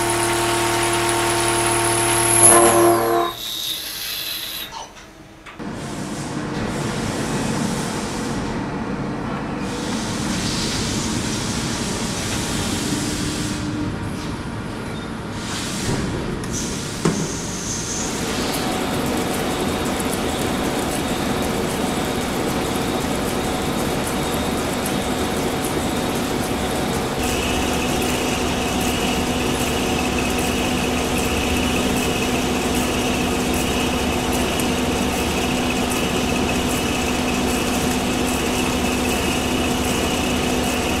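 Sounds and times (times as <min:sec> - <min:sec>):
steady high whine: 0:00.0 - 0:03.5, 0:18.2 - 0:41.0
milling machine cutting steel: 0:00.0 - 0:03.6, 0:18.2 - 0:41.0.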